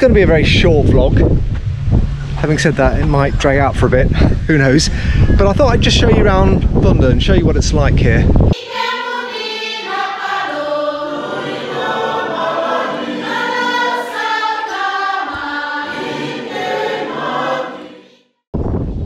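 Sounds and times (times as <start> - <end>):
choir singing sustained chords: 8.6 - 18.4.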